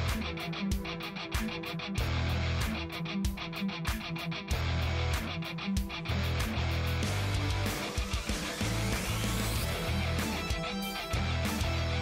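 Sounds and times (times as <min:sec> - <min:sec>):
rock guitar: 0:00.0 - 0:12.0
steady drum beat: 0:05.2 - 0:12.0.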